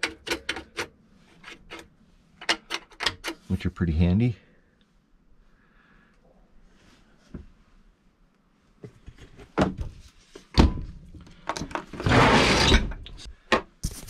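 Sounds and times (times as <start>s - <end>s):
drawer sliding out on runners: 11.9s - 13.0s.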